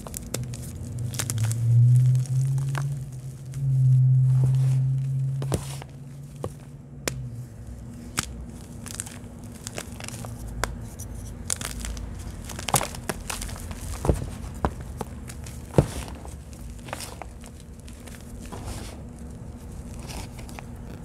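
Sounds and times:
loud low hum: 0:00.0 - 0:08.6
chalk crunching and crumbling: 0:00.0 - 0:21.0.

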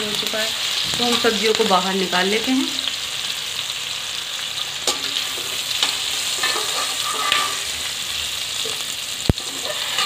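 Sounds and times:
vegetables sizzling in hot oil: 0:00.0 - 0:10.0
metal spoon clinking and scraping: 0:04.9 - 0:07.8, 0:09.4 - 0:10.0.

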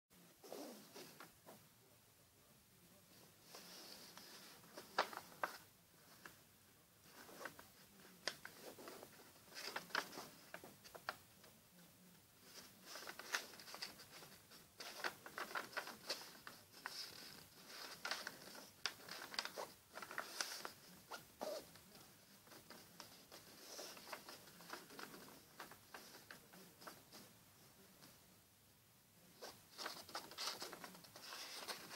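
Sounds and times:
paper rustling and crinkling: 0:03.4 - 0:06.4, 0:07.0 - 0:11.2, 0:12.4 - 0:27.3, 0:29.4 - 0:31.9.

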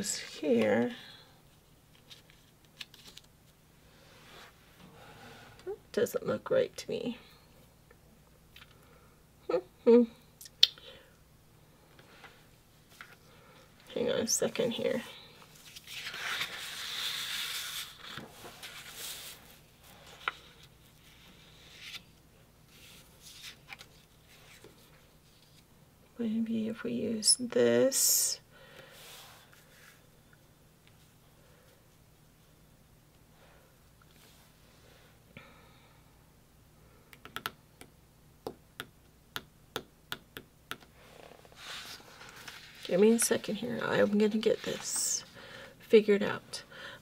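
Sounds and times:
paper sliding and rustling: 0:15.5 - 0:22.1, 0:22.7 - 0:25.6, 0:41.1 - 0:43.2.

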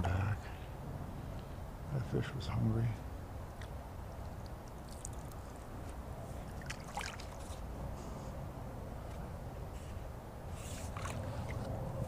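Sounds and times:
low steady rumble: 0:00.0 - 0:12.0
water splashes: 0:03.5 - 0:07.7, 0:10.6 - 0:11.8
water lapping around kayak hull: 0:03.5 - 0:08.3, 0:09.8 - 0:12.0.

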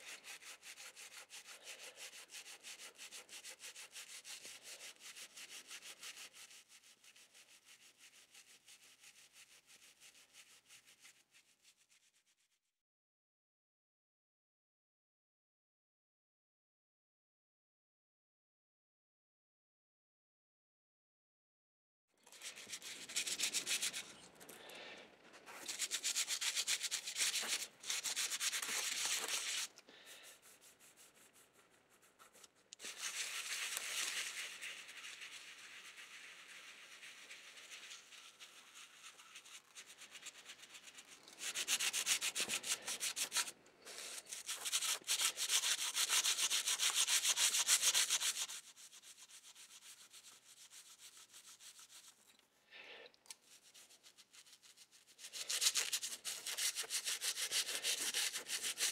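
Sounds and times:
toothbrush scrubbing metal: 0:22.3 - 0:24.6, 0:25.4 - 0:52.2, 0:53.3 - 0:58.9.

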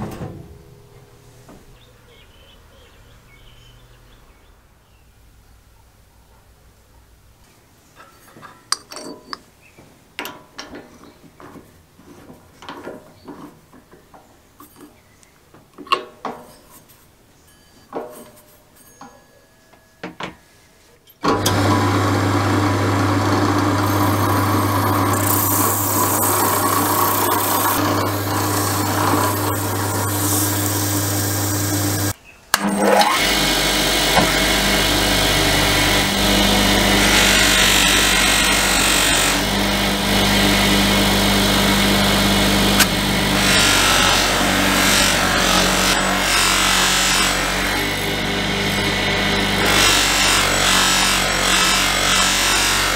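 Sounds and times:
drill press motor hum: 0:21.2 - 0:52.9
bench buffer motor running: 0:21.3 - 0:52.9.

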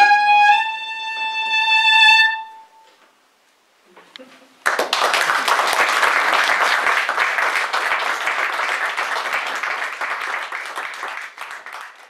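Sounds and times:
audience applauding: 0:04.6 - 0:12.0.

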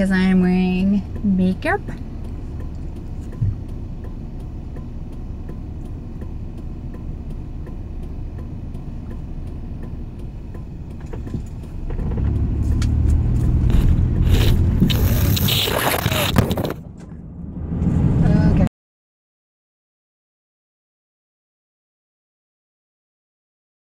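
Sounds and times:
faint regular ticking: 0:00.0 - 0:13.2
truck engine and road rumble: 0:00.0 - 0:18.7.

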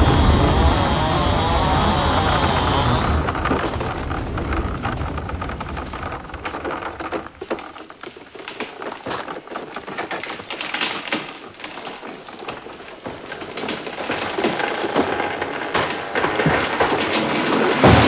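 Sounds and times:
wood cracking and snapping: 0:00.0 - 0:18.0.

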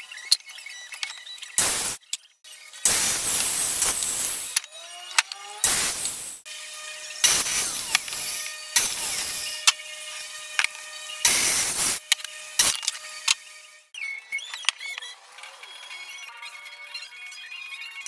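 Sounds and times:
mitre saw cutting wood: 0:03.9 - 0:13.9.

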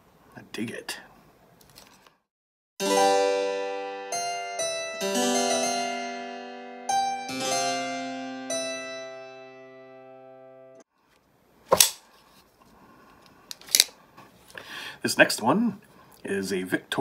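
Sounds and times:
harpsichord chords: 0:02.8 - 0:10.8.

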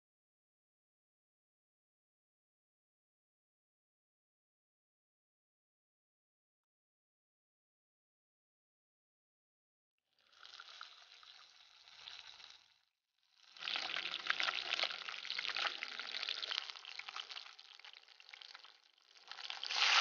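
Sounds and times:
fish sizzling in hot oil: 0:13.9 - 0:20.0.

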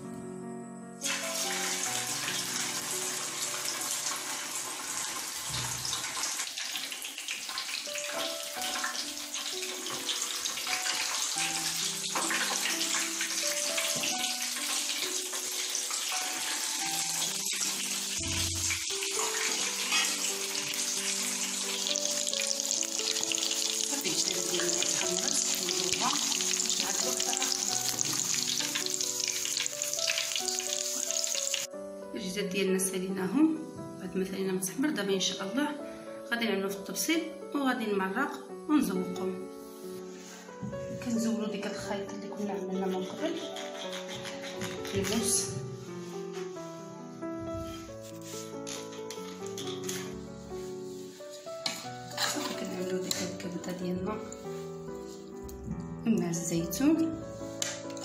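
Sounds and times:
background music melody: 0:00.0 - 0:06.0, 0:07.0 - 0:58.0
chicken sizzling in hot oil: 0:01.0 - 0:31.7, 0:49.6 - 0:53.0.

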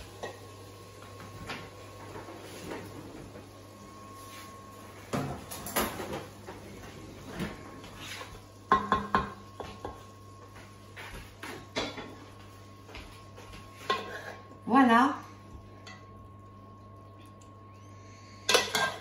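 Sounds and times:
utensils and dishes clinking: 0:05.1 - 0:06.3, 0:18.4 - 0:19.0.

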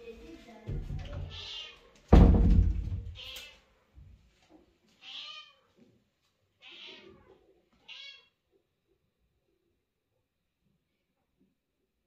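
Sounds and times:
cat meowing: 0:01.2 - 0:02.0, 0:03.1 - 0:03.7, 0:05.0 - 0:05.8, 0:06.6 - 0:08.4.

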